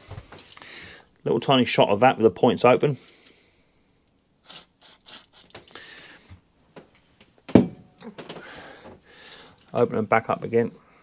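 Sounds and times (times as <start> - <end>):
aerosol spray hiss: 4.4 - 5.6.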